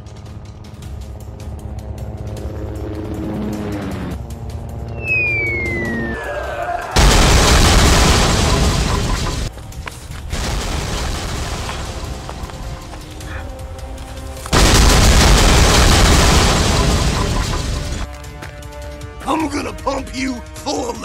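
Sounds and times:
background music: 0.0s - 21.0s
heavy explosion booms: 7.0s - 9.5s, 10.3s - 12.4s, 14.5s - 18.1s.

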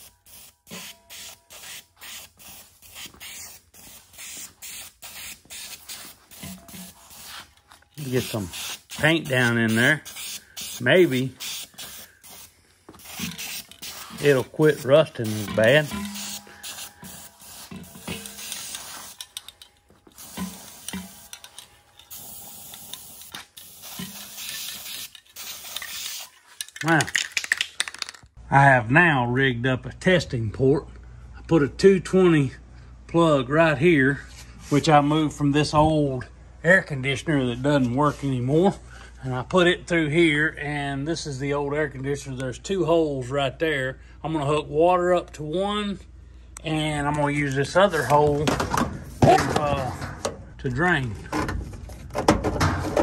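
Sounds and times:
spray paint can hissing: 0.0s - 26.4s.

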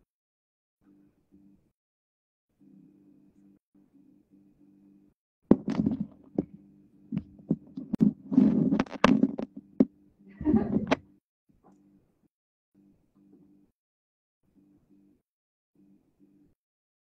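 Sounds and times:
faint low hum: 2.5s - 13.7s
knocks and thumps: 5.5s - 6.6s, 7.2s - 11.0s.

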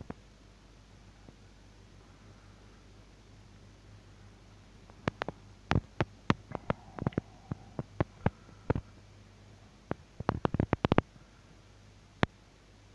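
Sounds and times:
faint low hum: 0.0s - 12.9s
sharp clicks and taps: 4.9s - 7.2s, 9.9s - 11.1s.

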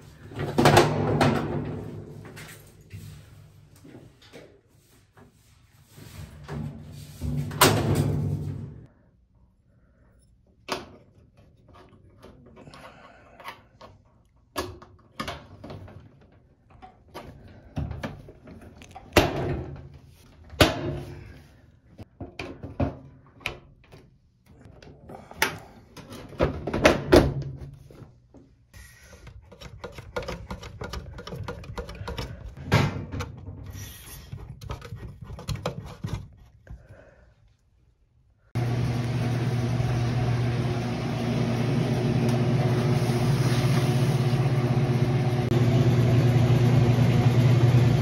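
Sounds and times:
knocks and clunks of sheet metal: 0.4s - 2.1s, 6.5s - 8.8s.

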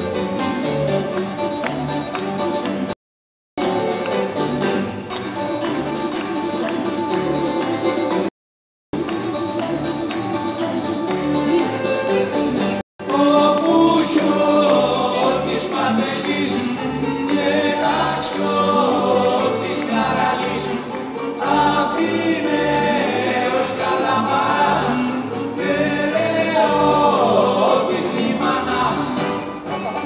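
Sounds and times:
voices singing together: 13.0s - 29.7s.

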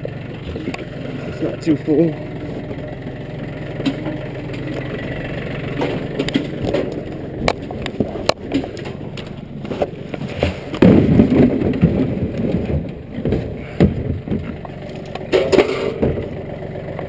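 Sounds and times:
plastic barrel scraping and knocking: 0.0s - 1.8s, 2.4s - 16.4s
engine idling: 0.0s - 17.0s
heavy thump of barrel: 10.7s - 14.5s.

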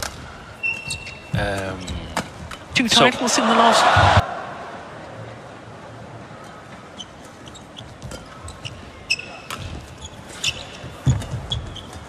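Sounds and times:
low hall background: 0.0s - 12.0s
shoes squeaking on court: 0.6s - 2.1s, 6.9s - 12.0s.

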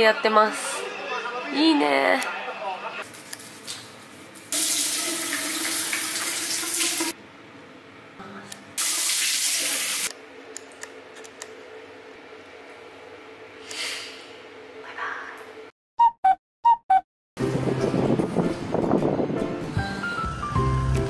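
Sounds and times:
water running from sink tap: 4.5s - 7.2s, 8.8s - 10.1s.

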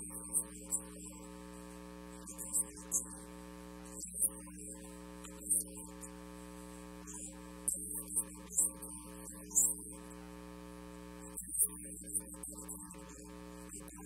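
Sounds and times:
electrical mains hum: 0.0s - 14.0s.

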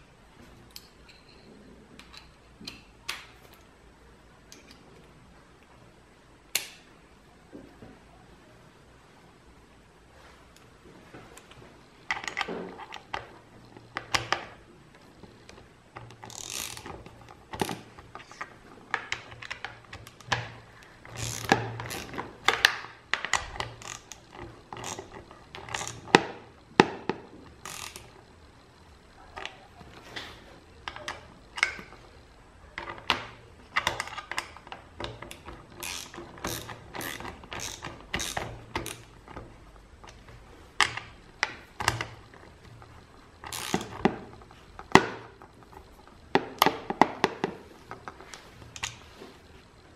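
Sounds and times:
torque wrench ratcheting clicks: 16.0s - 20.4s, 21.1s - 26.3s, 27.6s - 28.2s, 33.8s - 39.4s, 43.4s - 44.1s.

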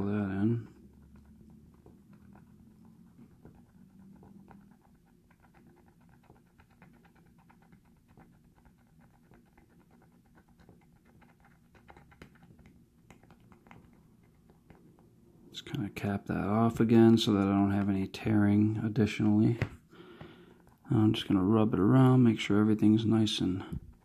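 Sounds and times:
plastic pen tip scratching vinyl: 0.6s - 15.1s.

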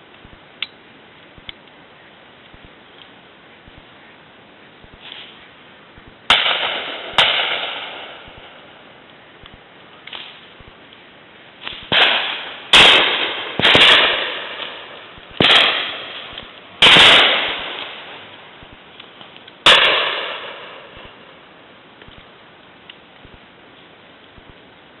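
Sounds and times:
shotgun shots echoing: 6.3s - 8.6s, 11.6s - 18.3s, 19.6s - 21.3s.

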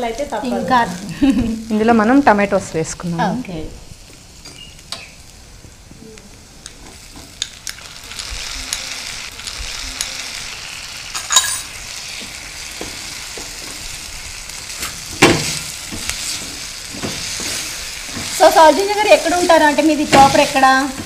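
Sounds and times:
tomatoes sizzling in a pan: 0.0s - 21.0s
spatula scraping and knocking pan: 15.1s - 21.0s.

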